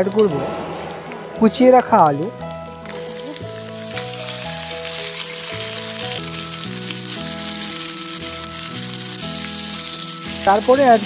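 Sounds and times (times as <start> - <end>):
background music: 0.0 - 11.0
potatoes sizzling in hot oil: 2.8 - 11.0.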